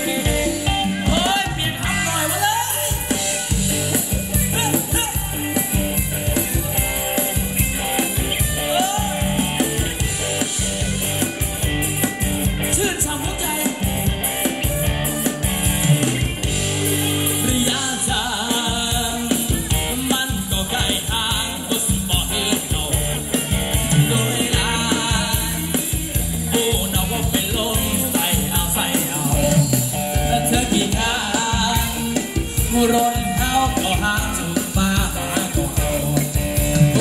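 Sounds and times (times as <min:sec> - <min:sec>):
band playing dance music: 0:00.0 - 0:37.0
person singing: 0:08.0 - 0:09.8, 0:15.2 - 0:37.0.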